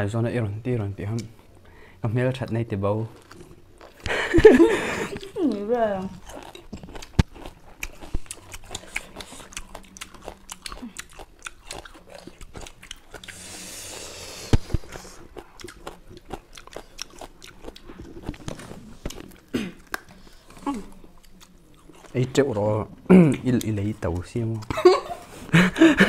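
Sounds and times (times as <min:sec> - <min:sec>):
wet chewing and smacking: 0:02.4 - 0:04.2, 0:05.0 - 0:13.6, 0:14.4 - 0:24.8.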